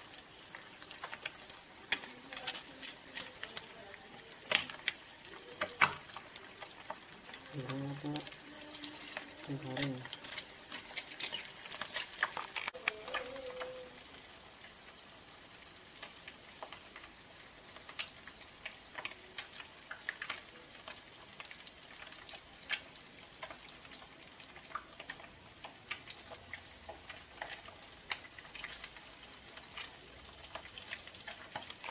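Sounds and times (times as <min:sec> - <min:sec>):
fish sizzling in hot oil: 0:00.0 - 0:31.9
oil crackling and popping: 0:00.0 - 0:31.9
metal spatula stirring in pan: 0:04.4 - 0:13.6.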